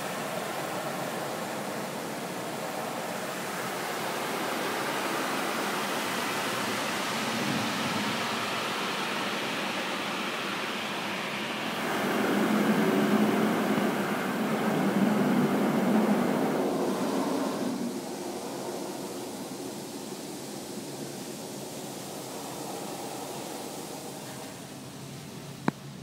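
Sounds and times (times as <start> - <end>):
car wash water spray rushing: 0.0 - 26.0.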